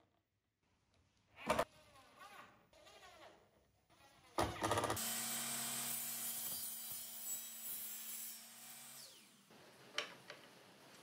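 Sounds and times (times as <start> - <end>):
miter saw cutting metal: 5.0 - 9.3.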